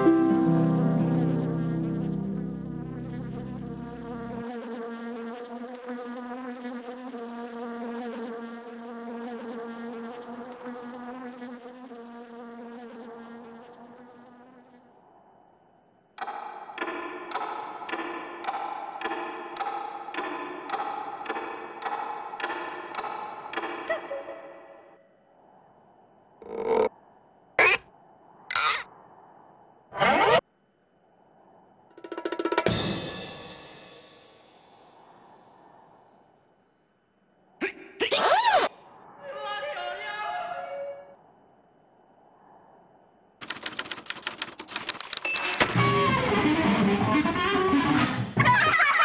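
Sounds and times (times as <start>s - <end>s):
pulsing buzz: 0.0s - 5.2s
cartoon fly buzzing: 0.6s - 14.9s, 27.6s - 27.8s.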